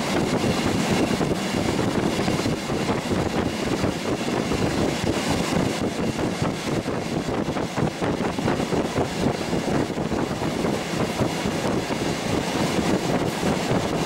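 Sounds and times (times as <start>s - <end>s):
train wheels rolling on rails: 0.0s - 14.0s.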